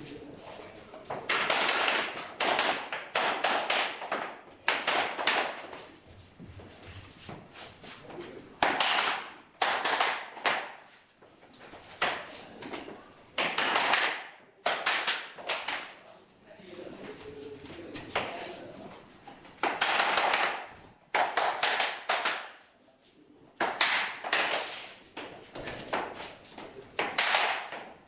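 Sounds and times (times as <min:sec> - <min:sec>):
hammer knocking laminate planks: 0:01.2 - 0:05.6, 0:08.6 - 0:10.8, 0:13.4 - 0:15.9, 0:19.6 - 0:22.6, 0:23.6 - 0:26.2, 0:27.0 - 0:28.0.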